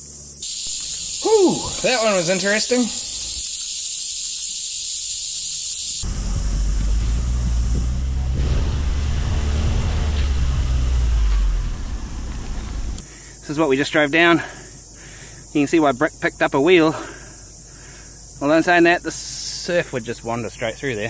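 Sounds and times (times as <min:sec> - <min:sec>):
insects buzzing: 0:00.0 - 0:21.0
van engine rumbling: 0:06.0 - 0:13.6.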